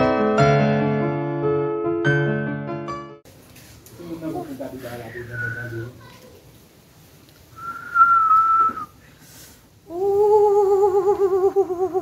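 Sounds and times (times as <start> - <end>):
woman whistling: 5.1 - 5.9, 7.6 - 9.0
woman moaning in pain: 9.9 - 12.0.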